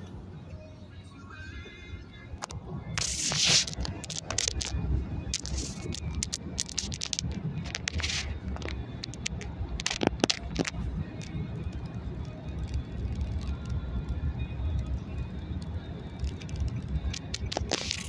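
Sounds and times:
stones popping under tyres: 2.4s - 4.8s, 5.4s - 11.4s, 16.2s - 18.0s.

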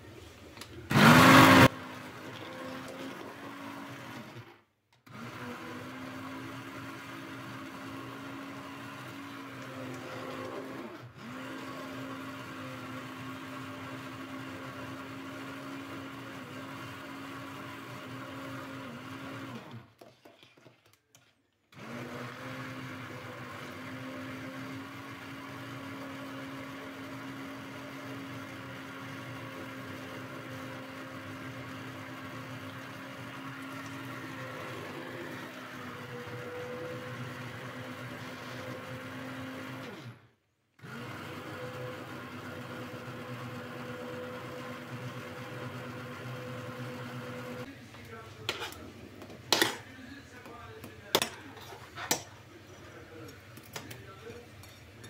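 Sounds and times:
hand blender motor running: 0.9s - 4.5s, 5.1s - 19.8s, 21.8s - 40.2s, 40.8s - 47.7s.

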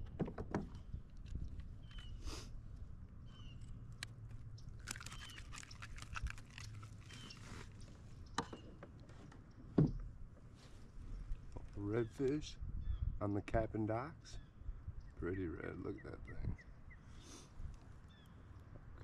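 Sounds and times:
net mesh rustling and clicking: 4.0s - 7.5s.

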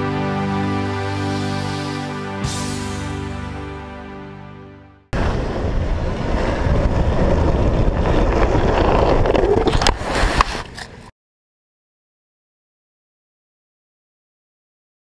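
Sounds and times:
skateboard wheels rolling on asphalt: 5.2s - 11.1s
wind buffeting microphone: 5.2s - 11.1s.

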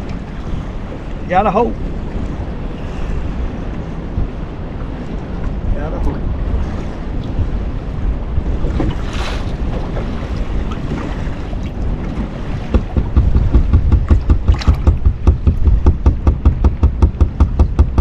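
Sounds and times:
wind rumbling on microphone: 0.0s - 18.0s
regular low thumping: 12.2s - 18.0s.

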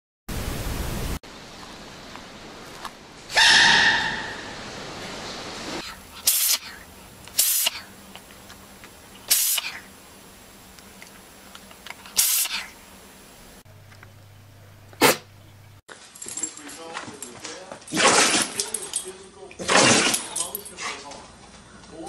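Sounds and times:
cat sneezing: 6.2s - 6.8s, 15.0s - 15.3s.

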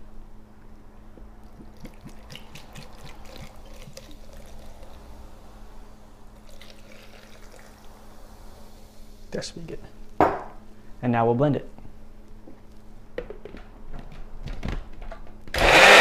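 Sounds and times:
liquid trickling into a jar: 1.6s - 5.2s, 6.4s - 8.0s.

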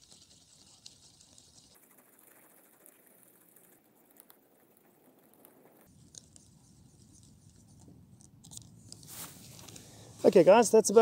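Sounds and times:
propeller ticking: 0.1s - 5.9s.

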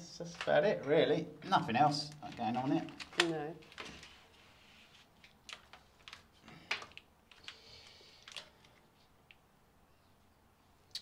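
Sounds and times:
cables clicking and tapping: 5.2s - 9.4s.

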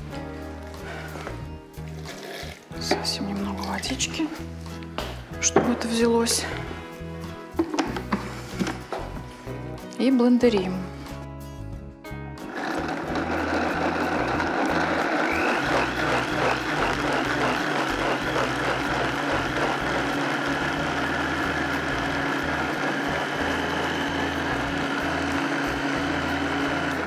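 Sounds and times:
blender motor whirring: 12.4s - 27.0s.

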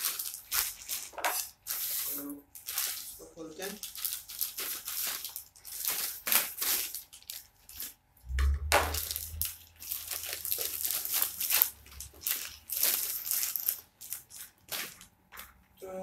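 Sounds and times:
plastic packaging crinkling: 0.0s - 15.8s
low bump: 8.2s - 9.4s.

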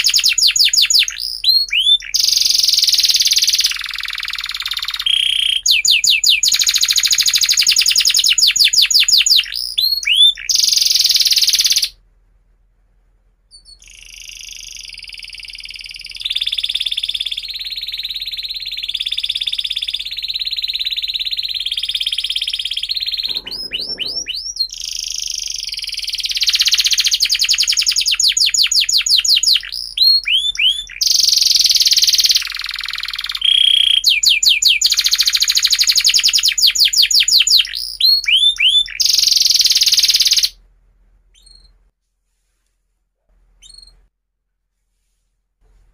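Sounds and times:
canary singing: 0.0s - 12.0s, 13.5s - 40.6s, 41.3s - 41.8s, 43.6s - 44.0s.

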